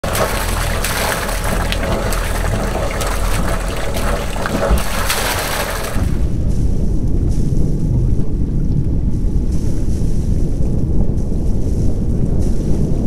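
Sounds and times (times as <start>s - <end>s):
water rushing along hull: 0.0s - 6.4s.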